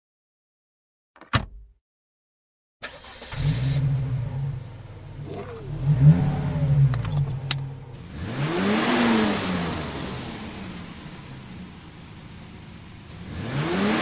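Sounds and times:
motorcycle engines revving: 0:05.1 - 0:11.0.

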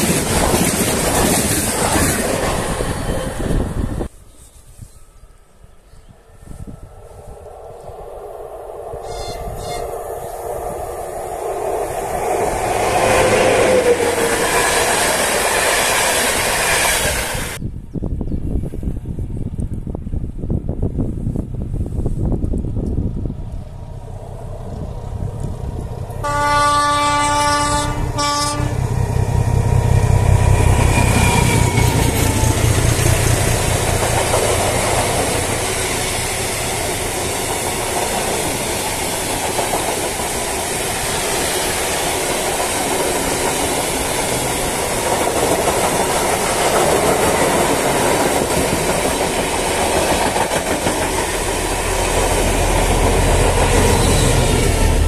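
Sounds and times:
train wagons rumbling and clacking: 0:00.0 - 0:04.2, 0:06.3 - 0:17.6, 0:22.1 - 0:55.0
diesel locomotive engine drone: 0:00.0 - 0:17.6, 0:18.9 - 0:55.0
train horn: 0:09.0 - 0:10.1, 0:13.0 - 0:14.4, 0:26.2 - 0:29.0.

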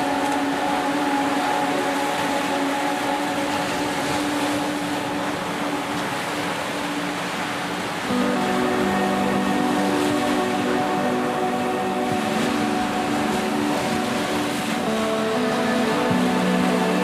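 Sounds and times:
soft background music: 0:00.0 - 0:17.0
waves washing on beach: 0:00.0 - 0:17.0.

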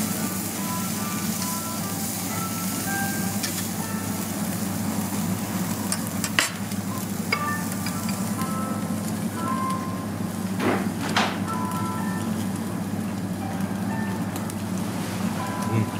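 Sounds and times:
meat sizzling on a grill: 0:00.0 - 0:15.9
metal tongs clicking on grill: 0:03.4 - 0:03.7, 0:05.8 - 0:08.4.

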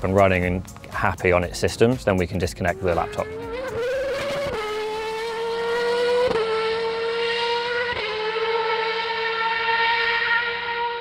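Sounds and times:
race car engine screaming: 0:02.7 - 0:11.0.

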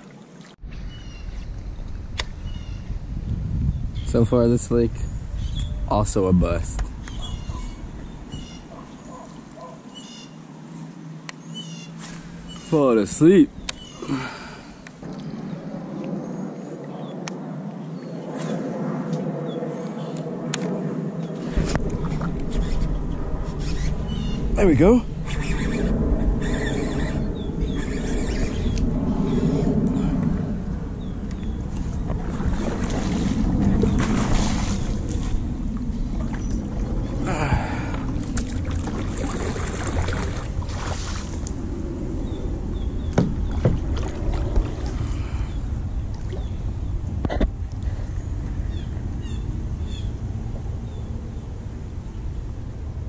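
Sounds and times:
outdoor background noise: 0:00.0 - 0:53.0
wind rumble on microphone: 0:00.6 - 0:09.8, 0:12.0 - 0:53.0
faint bird chirps: 0:07.1 - 0:10.4
water splashing around kayak: 0:31.6 - 0:41.6, 0:43.0 - 0:46.7.

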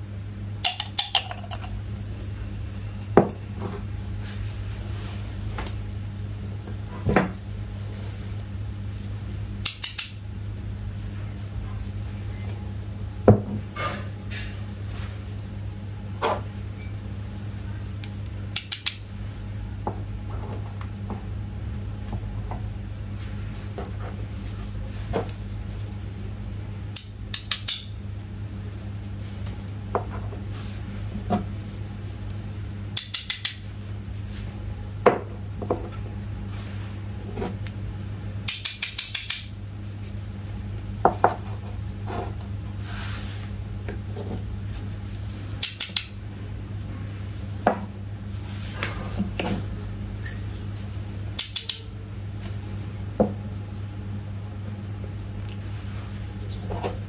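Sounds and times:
steady low hum: 0:00.0 - 0:57.0
clay pots clinking: 0:00.6 - 0:01.8.

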